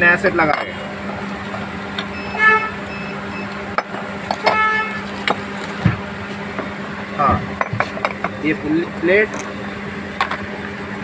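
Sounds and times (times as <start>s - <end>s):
steady low hum: 0.0s - 11.0s
vehicle horn toots: 2.2s - 2.9s, 4.4s - 5.1s.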